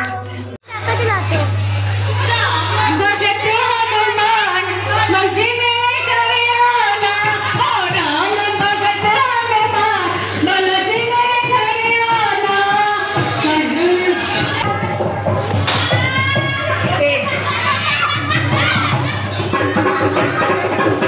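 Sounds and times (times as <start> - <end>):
woman singing devotional melody: 2.1 - 15.1.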